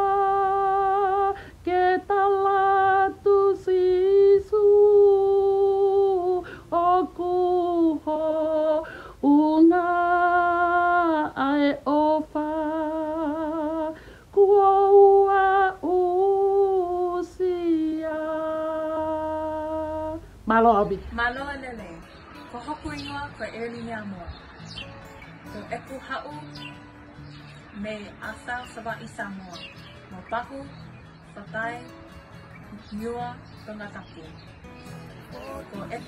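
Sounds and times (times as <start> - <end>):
woman singing unaccompanied: 0.0 - 24.8, 32.6 - 34.6, 35.4 - 36.0.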